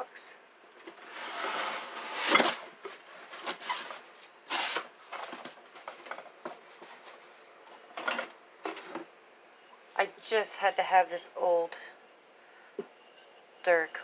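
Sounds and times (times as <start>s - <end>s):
rustling of moved items: 0.6s - 10.0s.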